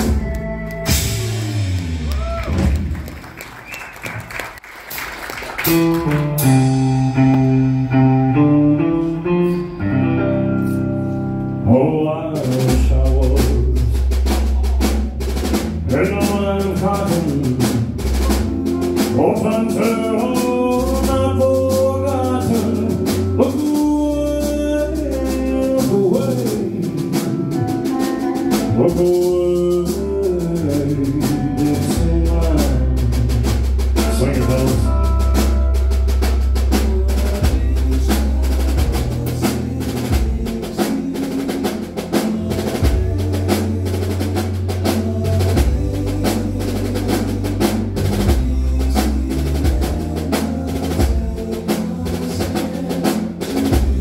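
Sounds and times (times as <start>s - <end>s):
live rock band playing: 0.0s - 4.4s, 5.0s - 54.0s
man singing: 11.6s - 54.0s.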